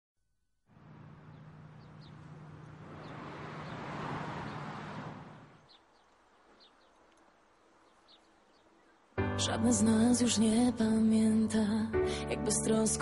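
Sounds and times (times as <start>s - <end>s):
bird chirps: 0.9s - 9.2s.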